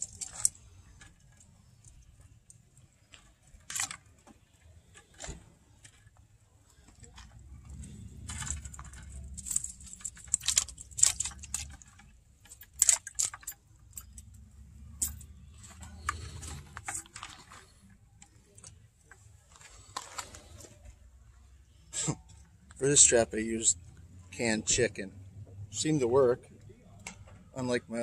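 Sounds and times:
wire-mesh trap rattling: 0:00.0 - 0:02.3, 0:07.6 - 0:17.8.

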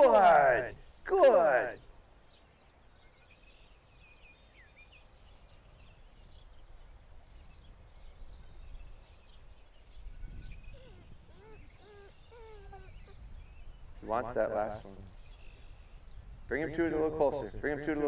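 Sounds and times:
faint birds chirping: 0:00.0 - 0:18.0
wind rumble on microphone: 0:05.2 - 0:17.9.

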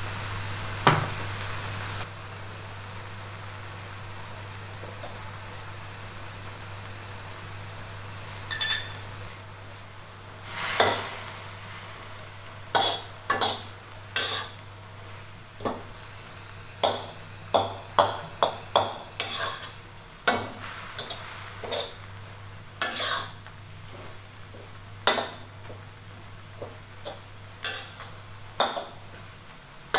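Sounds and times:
metallic clink: 0:08.5 - 0:09.0
spatula scraping a wok: 0:10.4 - 0:12.0, 0:12.6 - 0:14.6, 0:18.4 - 0:22.1, 0:22.8 - 0:24.3, 0:26.6 - 0:29.0.

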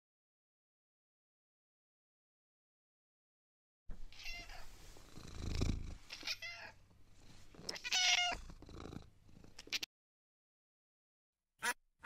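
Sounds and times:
cat meowing: 0:04.1 - 0:04.7, 0:06.1 - 0:06.8, 0:07.7 - 0:08.5, 0:09.6 - 0:09.9.

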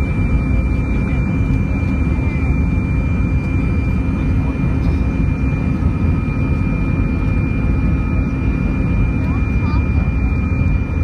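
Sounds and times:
jet engine rumble: 0:00.0 - 0:11.0
thin high engine whine: 0:00.0 - 0:11.0.

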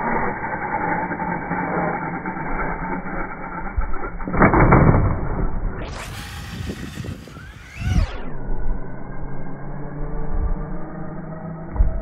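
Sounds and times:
falling pitch sweep: 0:00.0 - 0:12.0
rc truck tyre and motor noise: 0:00.0 - 0:12.0.

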